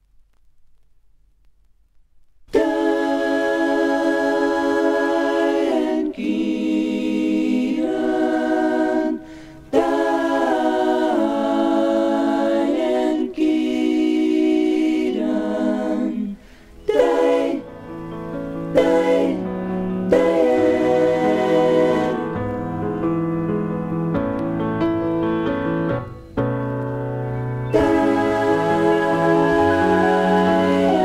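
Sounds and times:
voices singing in harmony: 0:02.5 - 0:23.1, 0:27.4 - 0:31.0.

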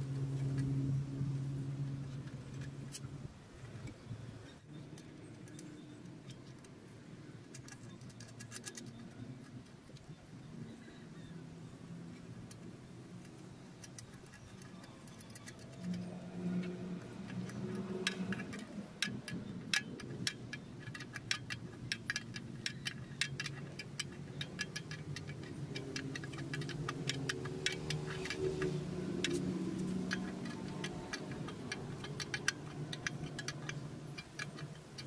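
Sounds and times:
hand tool metallic clicks: 0:13.8 - 0:35.0.

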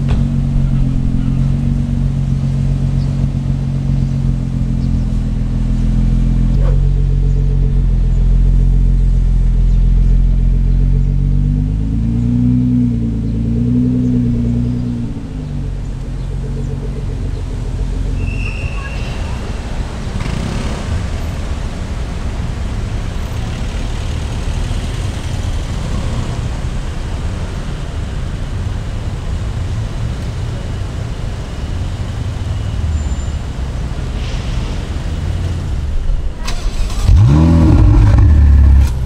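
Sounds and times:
car engines idling: 0:00.0 - 0:18.3, 0:34.8 - 0:39.0
car engine blipped: 0:00.0 - 0:21.2, 0:36.3 - 0:39.0
street traffic: 0:00.0 - 0:39.0.

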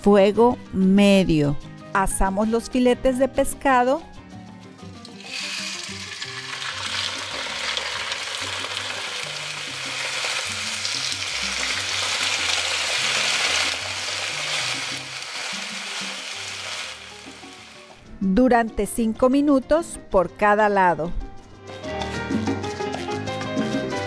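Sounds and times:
fish sizzling in hot oil: 0:05.1 - 0:18.0.

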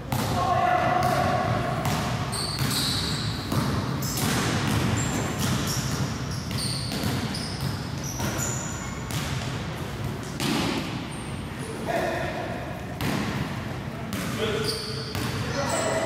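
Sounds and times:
sneakers squeaking on floor: 0:01.8 - 0:11.8, 0:14.1 - 0:16.0
basketball bouncing on wooden floor: 0:03.5 - 0:08.5.

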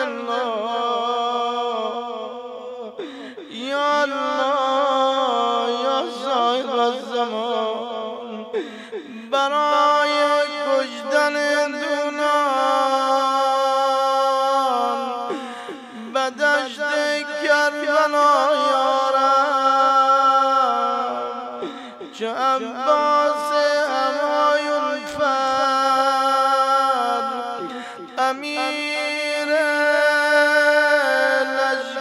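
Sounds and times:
man chanting elegy: 0:15.8 - 0:32.0.

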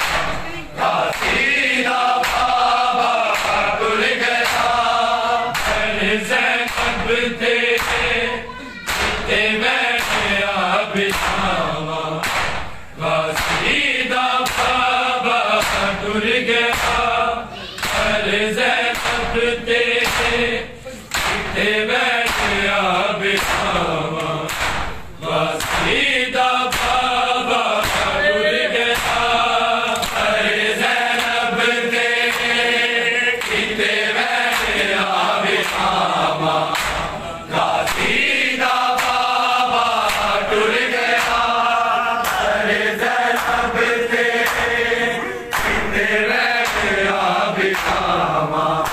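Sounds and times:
men chanting in chorus: 0:00.0 - 0:48.9
hands striking bare chests: 0:25.6 - 0:26.0, 0:26.7 - 0:27.1, 0:27.8 - 0:28.2, 0:28.9 - 0:29.3.

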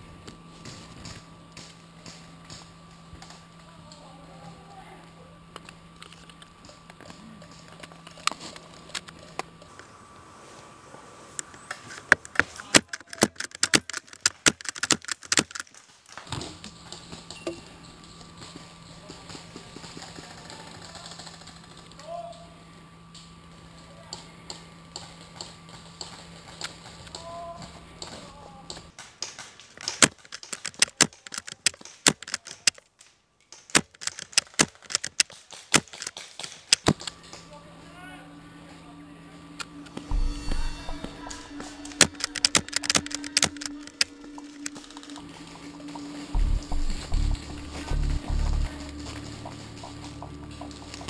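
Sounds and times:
faint steady hum: 0:00.0 - 0:29.0, 0:29.8 - 0:51.0
airsoft guns firing: 0:12.2 - 0:15.7, 0:33.5 - 0:37.1, 0:40.9 - 0:45.1.

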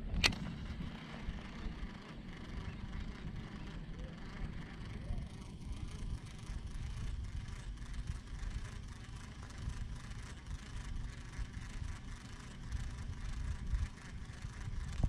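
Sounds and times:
wind buffeting microphone: 0:05.6 - 0:15.0.

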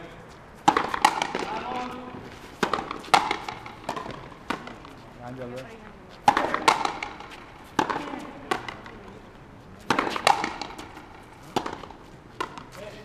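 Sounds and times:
ball slapping against wall: 0:00.7 - 0:01.8, 0:02.6 - 0:04.9, 0:06.3 - 0:09.0, 0:09.9 - 0:12.7
rubber ball struck with rackets: 0:00.7 - 0:01.8, 0:02.6 - 0:04.8, 0:06.3 - 0:09.0, 0:09.9 - 0:11.0.

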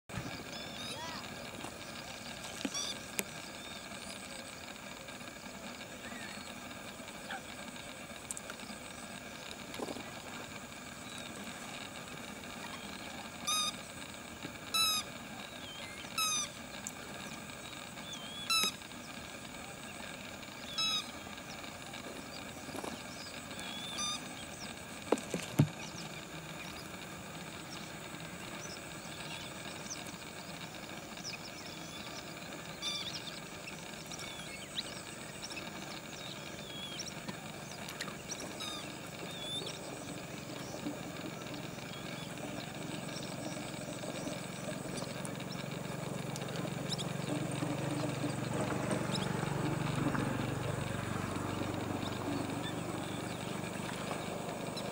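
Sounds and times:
ducks whistling calls: 0:00.2 - 0:04.3, 0:12.5 - 0:19.2, 0:20.2 - 0:24.9, 0:28.4 - 0:54.9
faint high chirps: 0:00.2 - 0:24.9, 0:25.8 - 0:49.9.

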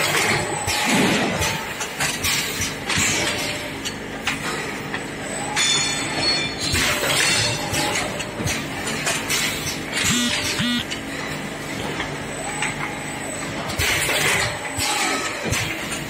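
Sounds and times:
metallic clanks and clinks: 0:05.5 - 0:10.6
steady machine hum: 0:06.9 - 0:16.0.

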